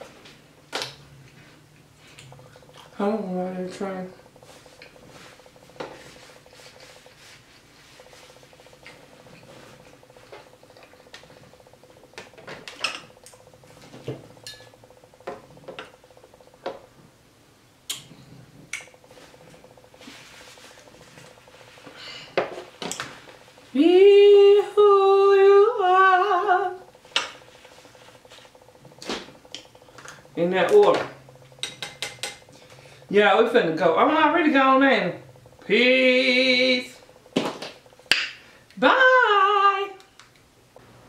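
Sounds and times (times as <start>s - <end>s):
cutlery and dishes clinking: 31.6s - 32.4s.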